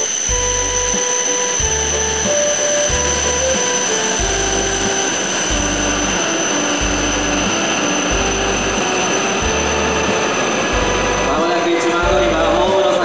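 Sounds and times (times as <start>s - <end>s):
music with held notes and bass: 0.0s - 13.0s
train hiss and whine: 0.0s - 13.0s.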